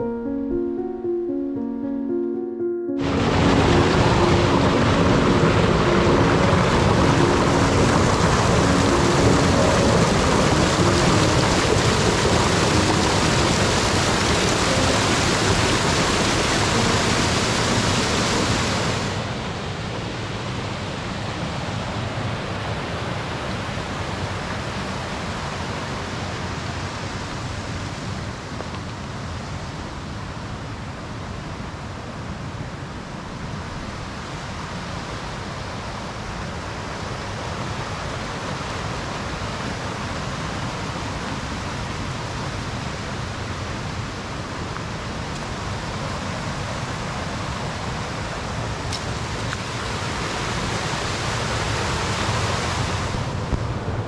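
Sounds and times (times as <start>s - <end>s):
river water rushing: 3.0s - 28.2s, 36.3s - 53.4s.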